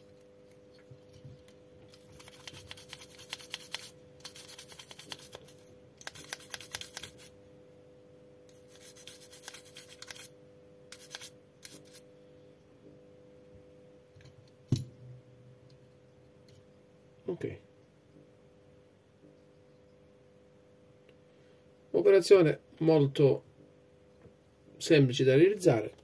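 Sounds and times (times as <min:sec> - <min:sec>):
faint steady hum: 0:00.0 - 0:26.0
toothbrush scrubbing a circuit board: 0:00.1 - 0:07.4, 0:08.5 - 0:12.1.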